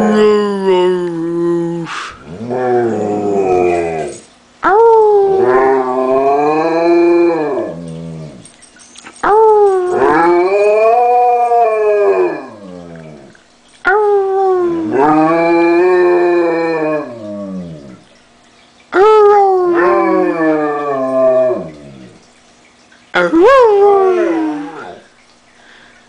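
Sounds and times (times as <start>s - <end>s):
person howling like a wolf: 0.0s - 8.4s, 9.2s - 12.9s, 19.0s - 21.8s, 23.3s - 25.0s.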